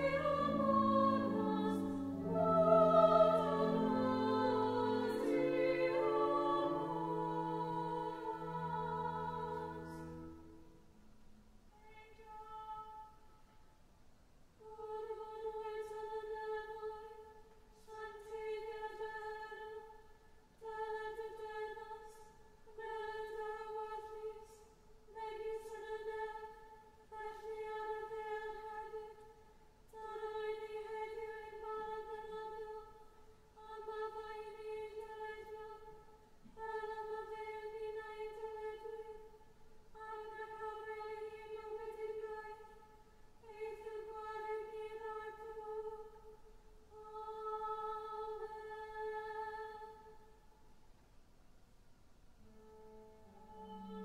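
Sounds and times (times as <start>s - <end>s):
choir chanting in unison: 0.0s - 10.3s, 33.6s - 39.3s, 40.0s - 50.2s.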